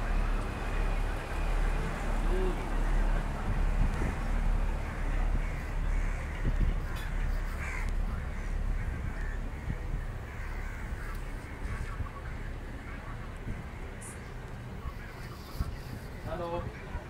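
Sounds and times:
train rumbling slowly: 0:00.0 - 0:17.0
crows cawing: 0:05.4 - 0:06.4, 0:07.5 - 0:11.2.

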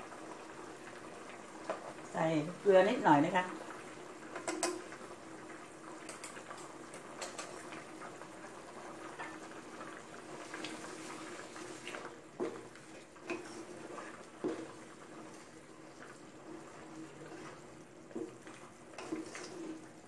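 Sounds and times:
curry bubbling in a pot: 0:00.0 - 0:20.0.

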